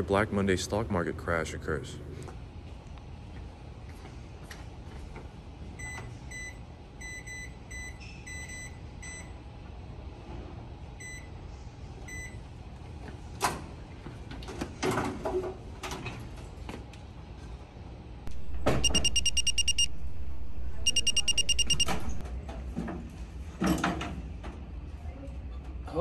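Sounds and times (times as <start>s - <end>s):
high electronic beeps: 18.3s - 22.2s
low hum: 18.3s - 22.2s.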